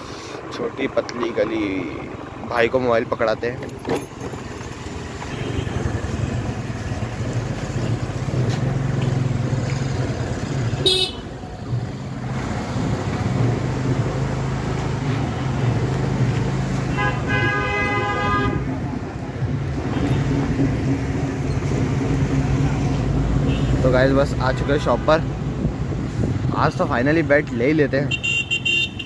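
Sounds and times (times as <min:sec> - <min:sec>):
road noise: 0:00.0 - 0:29.0
scooter engine running: 0:03.6 - 0:11.9
horn toot: 0:10.8 - 0:11.2, 0:16.9 - 0:18.7.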